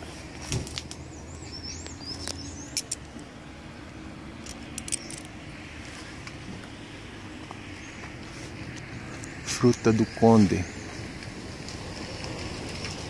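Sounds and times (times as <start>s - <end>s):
rustling leaves and twigs: 0.0s - 3.3s, 4.6s - 13.0s
distant traffic hum: 0.0s - 13.0s
bird chirping: 1.0s - 3.0s.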